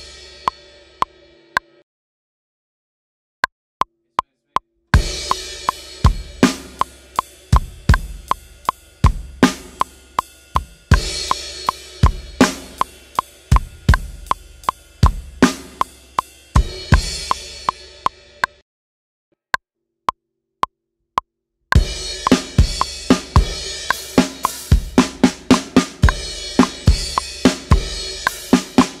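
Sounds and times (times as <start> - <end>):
drum kit rock groove: 0.0 - 1.2, 5.0 - 18.6, 21.7 - 29.0
crash cymbal accent: 0.0 - 1.5, 5.0 - 18.4
click track: 15.6 - 16.0.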